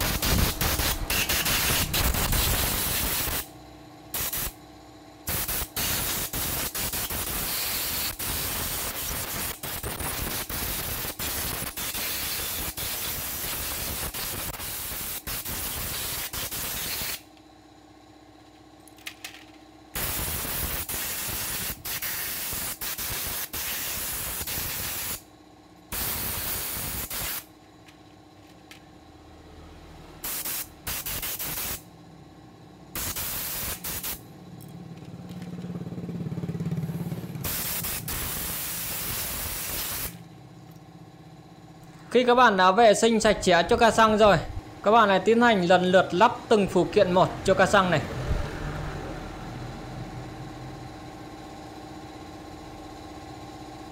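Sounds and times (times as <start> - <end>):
compressed air blow gun hissing: 0.0 - 3.5, 4.2 - 4.6, 5.3 - 17.2, 20.0 - 25.2, 26.0 - 27.4, 30.2 - 31.8, 33.0 - 34.2, 37.4 - 40.2.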